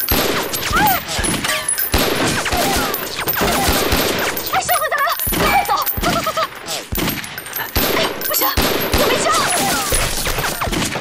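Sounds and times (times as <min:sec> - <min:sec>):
pistol and rifle shots: 0:00.0 - 0:00.8, 0:01.9 - 0:04.6, 0:06.9 - 0:11.0.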